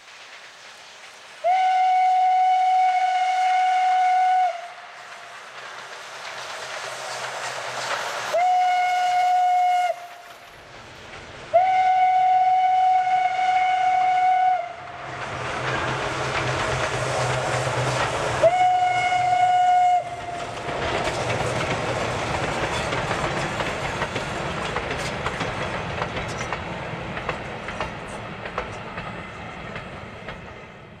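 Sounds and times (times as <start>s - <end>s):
train wheels clicking on rails: 0.0s - 31.0s
steam whistle blast: 1.4s - 5.0s, 8.3s - 10.2s, 11.5s - 15.0s, 18.4s - 20.4s.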